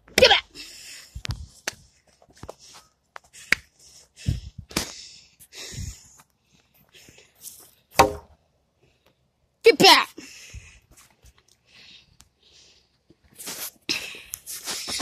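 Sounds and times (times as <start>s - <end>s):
dull thumps: 8.0s - 8.3s.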